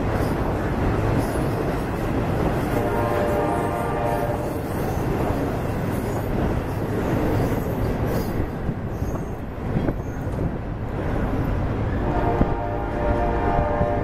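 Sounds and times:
train wheels rumbling on bridge: 0.0 - 14.0
wheel squeals: 5.9 - 10.4.

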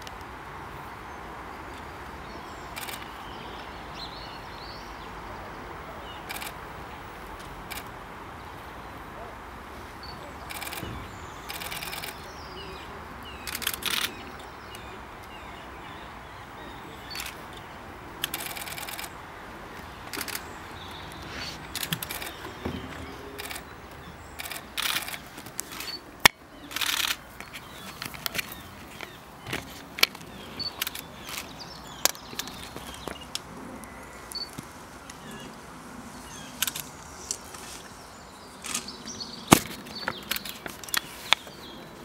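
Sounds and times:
outdoor background noise: 0.0 - 42.0
camera shutters firing: 24.4 - 26.0, 26.7 - 27.2.

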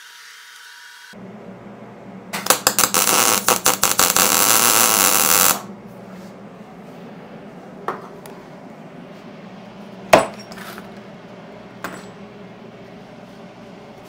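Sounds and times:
welding arc crackling: 2.3 - 5.7.

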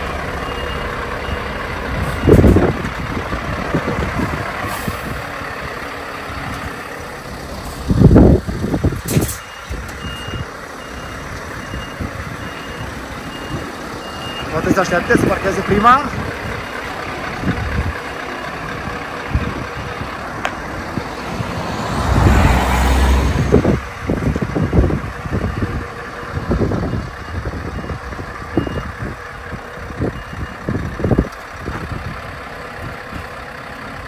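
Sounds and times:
truck engine running: 0.0 - 34.0
reversing beeps: 0.4 - 2.5, 9.3 - 14.8, 27.2 - 29.0, 30.1 - 30.6.

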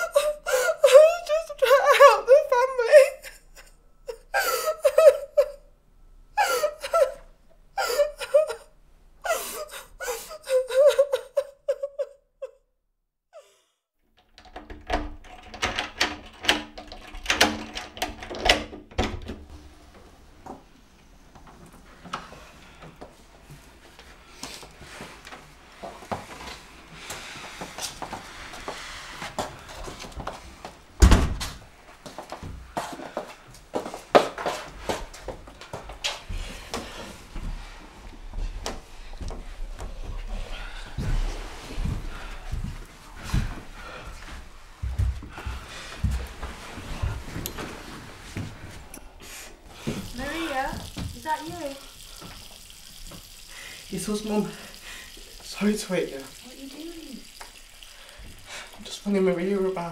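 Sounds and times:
person sobbing: 0.0 - 5.7, 6.4 - 12.6, 13.4 - 13.8.

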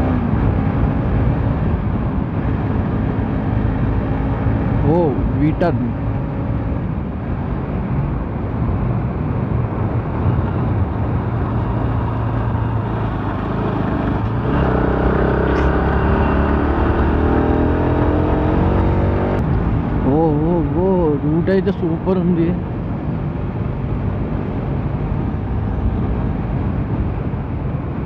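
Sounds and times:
road and wind noise: 0.0 - 28.0
motorcycle engine running: 9.7 - 19.4.

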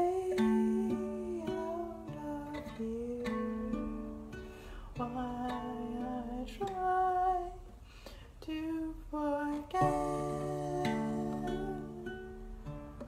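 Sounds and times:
person humming melody: 0.0 - 4.0, 8.5 - 12.7
ukulele chords: 0.0 - 7.8, 8.9 - 13.0.

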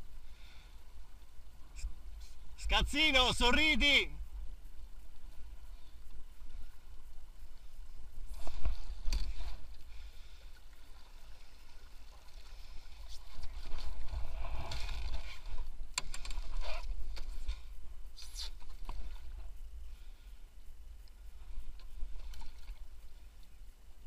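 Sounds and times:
water splashing along hulls: 0.0 - 24.0.

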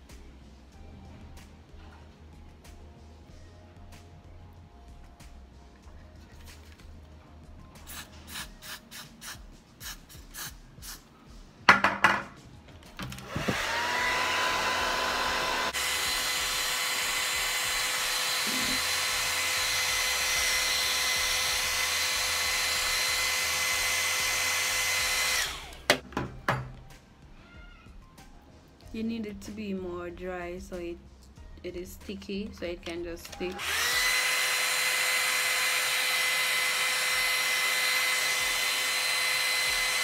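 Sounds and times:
hair dryer whine: 13.0 - 26.0, 33.3 - 40.0.

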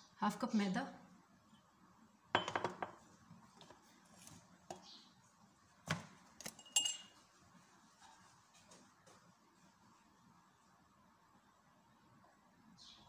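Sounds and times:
kitchenware knocks and clinks: 2.4 - 3.0.

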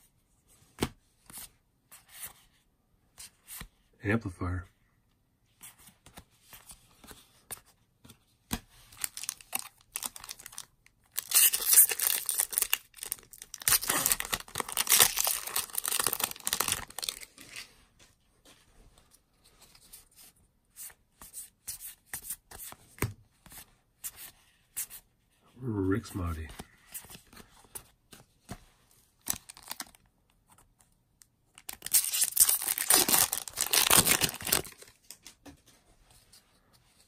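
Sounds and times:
foil wrapper ripping and crinkling: 9.0 - 17.6, 31.6 - 34.9.

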